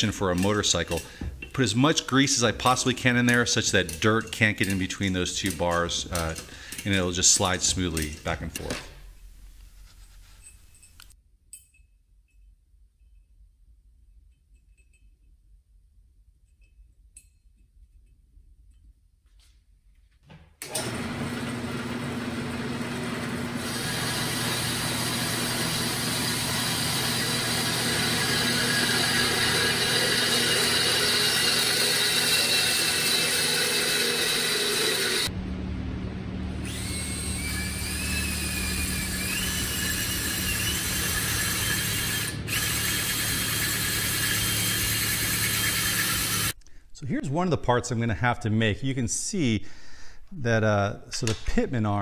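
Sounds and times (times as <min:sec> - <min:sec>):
bandsaw cutting steel tube: 0:00.0 - 0:08.4, 0:20.7 - 0:35.3, 0:36.6 - 0:46.6
cordless drill hole saw in steel: 0:20.7 - 0:35.3, 0:36.6 - 0:46.6.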